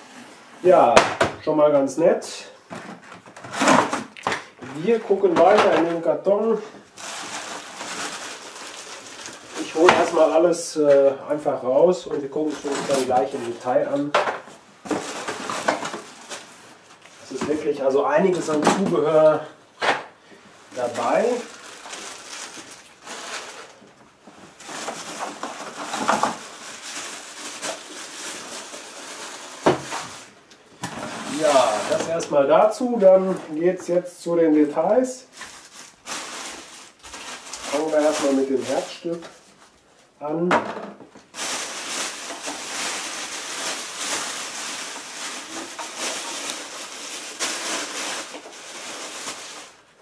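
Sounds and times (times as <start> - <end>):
plastic wrapping rustling: 2.6 - 11.2, 11.9 - 19.6, 20.2 - 40.2, 41.0 - 50.0
plastic bag crinkling: 6.9 - 10.4, 12.3 - 14.1, 14.8 - 19.3, 20.7 - 33.6, 35.3 - 39.8, 41.2 - 50.0.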